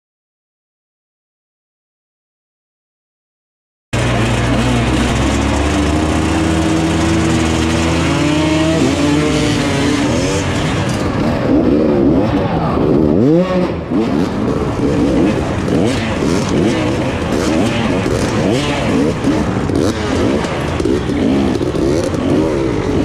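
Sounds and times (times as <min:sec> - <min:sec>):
dirt bike engines racing: 0:04.0 - 0:23.0.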